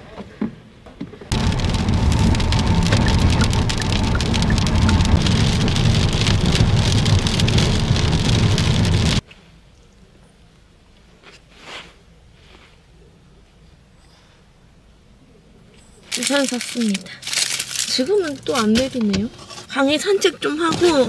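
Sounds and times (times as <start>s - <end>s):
road and tyre rumble: 0.9s - 9.4s, 15.6s - 21.0s
rain on a car roof: 1.3s - 9.2s.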